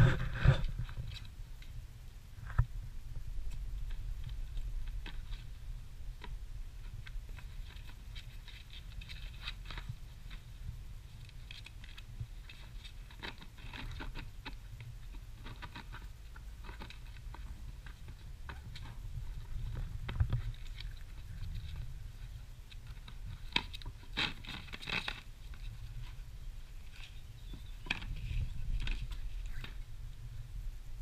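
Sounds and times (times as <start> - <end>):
puppies chewing plant saucer: 6.2 - 29.9.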